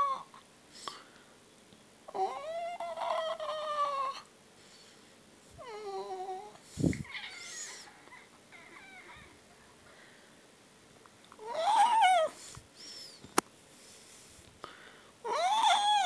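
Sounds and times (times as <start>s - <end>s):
cat meowing: 7.0s - 9.4s.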